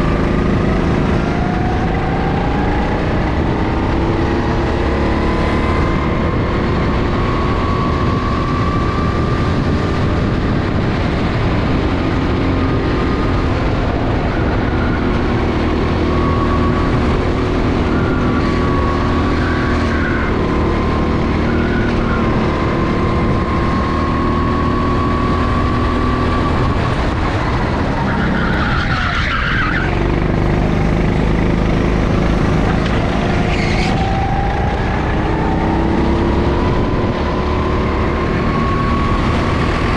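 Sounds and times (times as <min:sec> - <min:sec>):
go-kart engine running: 0:00.0 - 0:39.9
tyre squeal: 0:26.4 - 0:30.1, 0:32.5 - 0:35.8.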